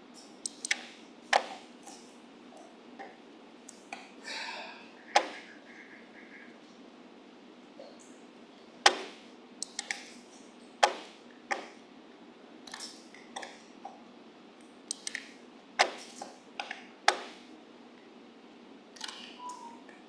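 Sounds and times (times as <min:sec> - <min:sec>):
mouse and keyboard clicking: 0:00.4 - 0:02.0, 0:09.6 - 0:10.1, 0:12.7 - 0:13.6, 0:14.9 - 0:17.2, 0:19.0 - 0:19.7.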